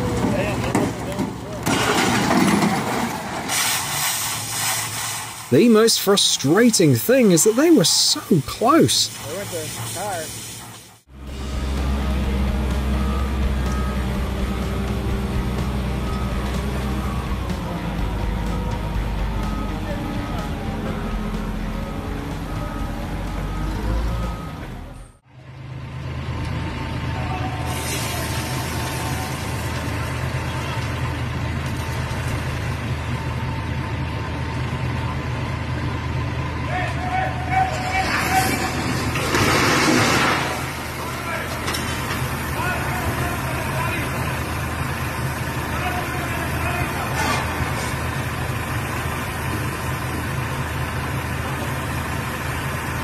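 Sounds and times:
diesel truck engine running: 0.0 - 4.0, 5.3 - 53.0
earth spilling with rushing hiss: 1.8 - 6.1, 27.6 - 30.6
hiss of site noise: 3.4 - 6.0, 7.2 - 11.6, 27.6 - 30.1.

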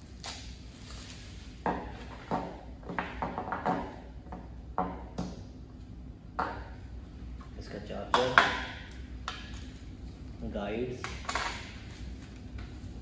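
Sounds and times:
plastic wrap rustle: 0.0 - 2.1.

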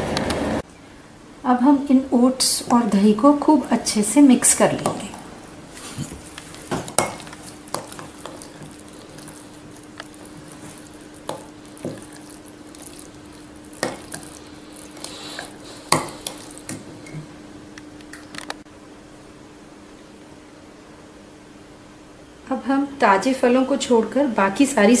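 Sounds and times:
spoon stirring oats: 5.8 - 16.8.

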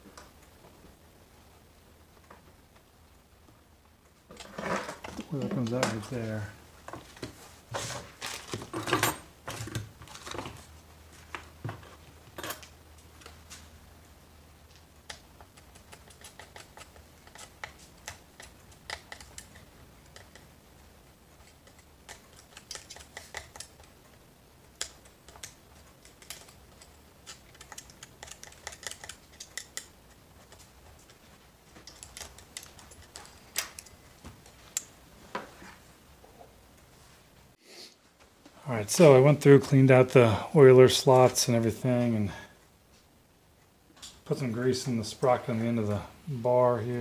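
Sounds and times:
hand tool clicking and scraping: 15.1 - 20.5, 21.4 - 24.1, 24.7 - 34.0.

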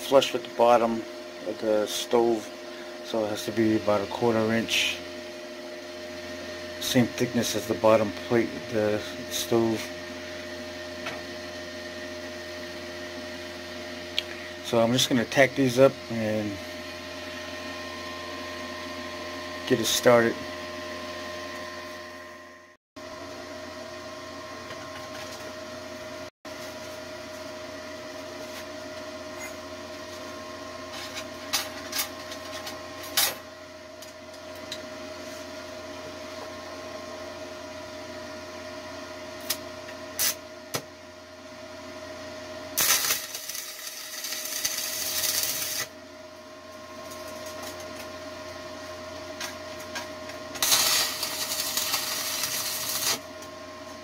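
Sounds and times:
steady hum: 0.0 - 54.0
welding arc noise: 40.2 - 40.4, 42.8 - 46.0, 50.5 - 53.4.

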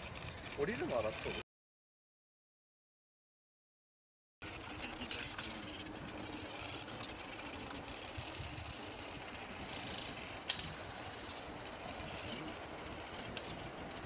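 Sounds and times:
drive motors whirring: 4.4 - 14.0
robot wheels rattling on metal grate: 4.4 - 14.0.

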